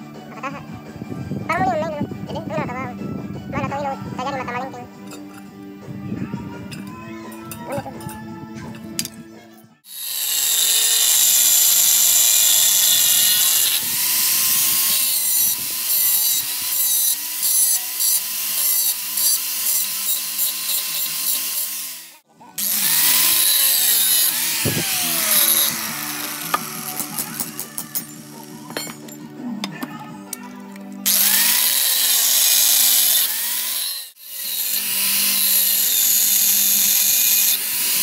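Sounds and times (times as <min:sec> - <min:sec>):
angle grinder grinding metal: 0:09.8 - 0:29.2, 0:31.0 - 0:38.0.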